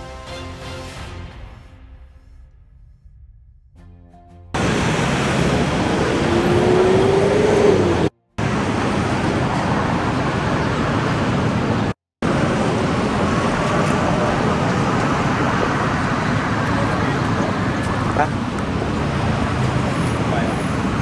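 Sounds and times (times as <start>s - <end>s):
road traffic noise: 4.6s - 21.0s.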